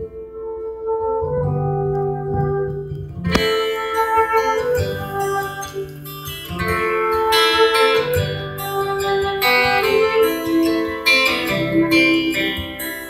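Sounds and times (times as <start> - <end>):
flute melody: 0.0 - 13.0
acoustic guitar strumming: 3.0 - 13.0.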